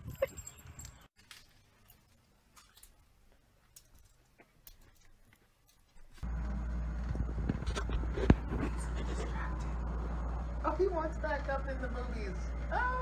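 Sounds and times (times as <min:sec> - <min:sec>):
loud low hum: 0:06.2 - 0:13.0.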